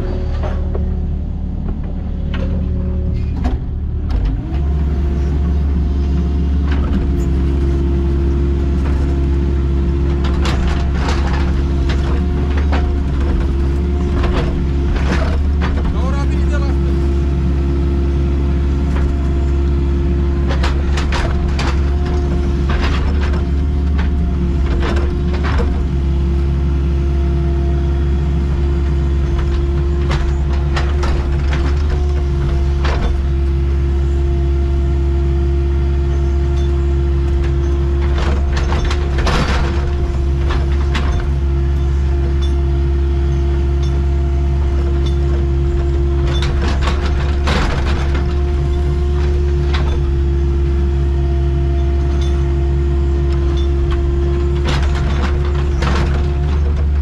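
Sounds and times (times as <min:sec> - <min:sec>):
excavator diesel engine running: 0:00.0 - 0:57.0
machine knocks and clatters: 0:10.1 - 0:16.7, 0:20.4 - 0:26.0, 0:29.2 - 0:33.4, 0:37.4 - 0:41.5, 0:44.8 - 0:50.2, 0:53.4 - 0:57.0.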